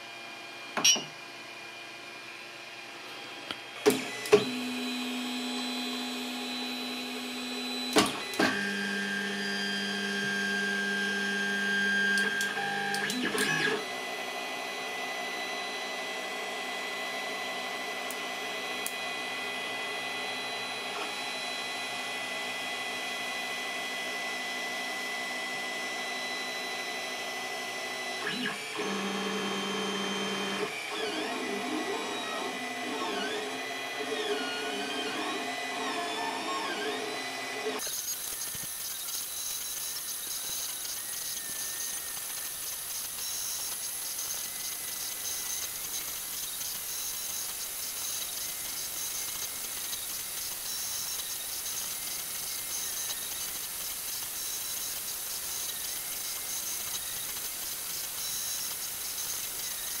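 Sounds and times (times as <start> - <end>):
stepper motors whining: 14.7 - 60.0.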